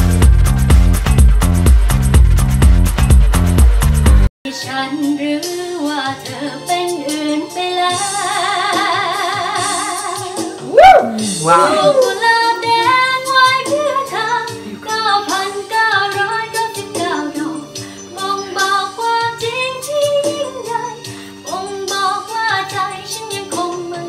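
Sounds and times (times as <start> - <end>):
woman singing: 4.5 - 24.0
backing track with steady beat: 10.4 - 12.8.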